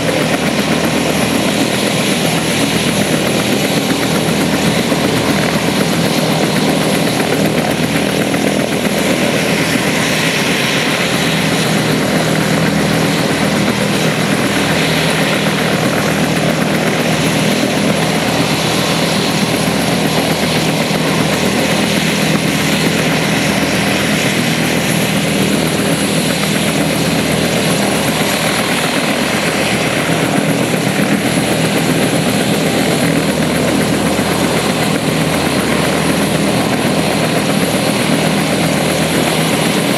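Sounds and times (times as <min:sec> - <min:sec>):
helicopter engine and rotor: 0:00.0 - 0:39.9.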